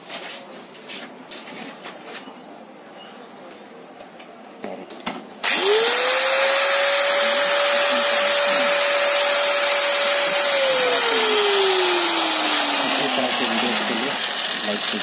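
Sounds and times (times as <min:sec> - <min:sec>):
angle grinder motor whine: 0:05.4 - 0:15.0.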